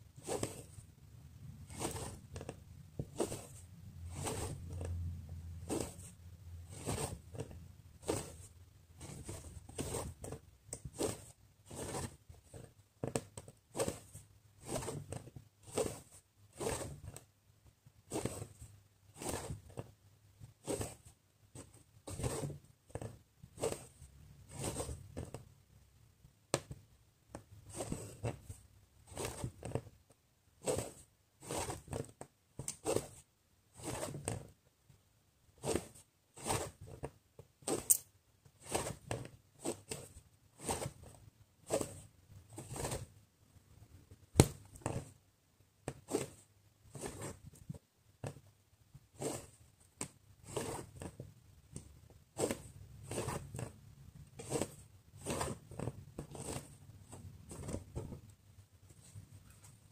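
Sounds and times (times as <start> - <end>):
fabric rustling: 0.0 - 0.8, 1.6 - 17.3, 52.3 - 59.9
thread pulled through fabric: 0.1 - 0.8, 1.6 - 17.3, 18.0 - 25.5, 27.4 - 30.0, 30.6 - 34.6, 35.6 - 43.2, 49.1 - 59.9.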